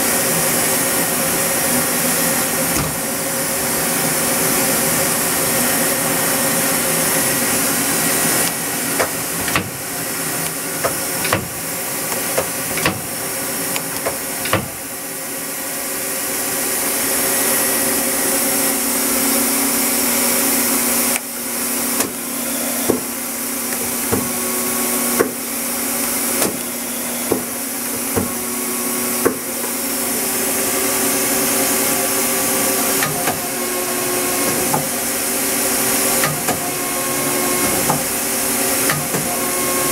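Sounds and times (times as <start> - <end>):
machine hum and hiss: 0.0 - 39.9.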